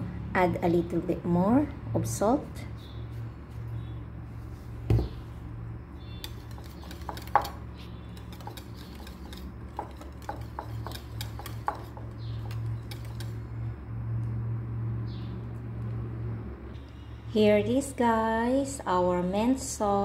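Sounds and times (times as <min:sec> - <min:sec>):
steady low hum: 0:00.0 - 0:20.0
dull knock: 0:04.9 - 0:05.2
whisk clicking and scraping bowl: 0:06.0 - 0:13.5.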